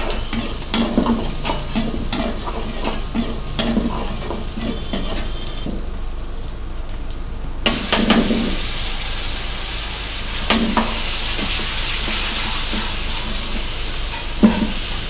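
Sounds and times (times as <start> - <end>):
ladle knocking and scraping wok: 0.0 - 5.6, 10.4 - 15.0
food sizzling in hot oil: 0.0 - 5.7, 7.6 - 15.0.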